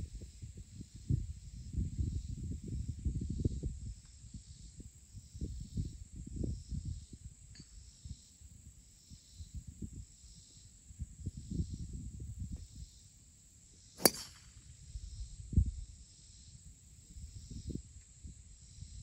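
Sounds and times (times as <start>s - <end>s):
wind rumbling on microphone: 0.0s - 13.0s, 14.0s - 19.0s
faint insect buzz: 0.0s - 19.0s
golf driver striking ball: 14.0s - 14.5s.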